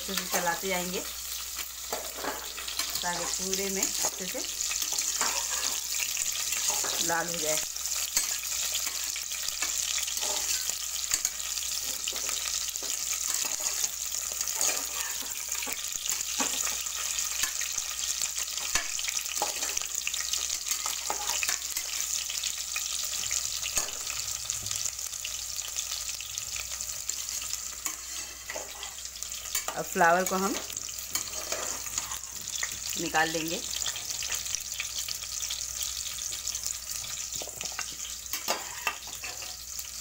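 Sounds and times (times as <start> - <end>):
vegetables sizzling in oil: 0.0 - 40.0
spoon stirring and scraping: 1.4 - 22.1, 27.1 - 32.9, 37.0 - 39.6.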